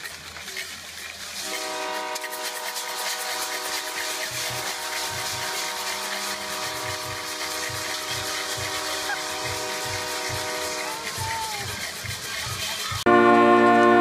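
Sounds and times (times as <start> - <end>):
multi-note horn chord: 1.5 - 10.9, 13.1 - 14.0
crowd noise: 2.2 - 14.0
low drum-like thumps: 4.3 - 12.3.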